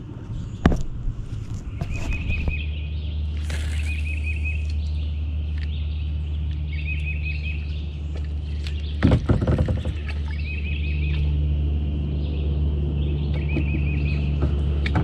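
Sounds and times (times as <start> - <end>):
low hum: 0.0 - 15.0
songbird trilling: 1.8 - 7.8.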